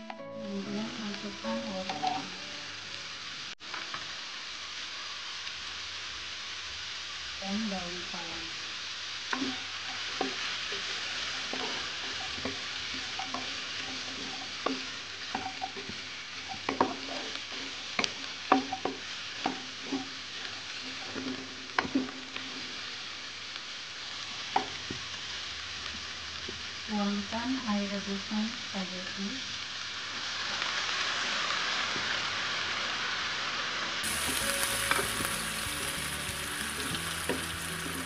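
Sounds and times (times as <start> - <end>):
food sizzling in hot oil: 0.4 - 38.0
wooden spatula scraping pan: 9.4 - 22.7.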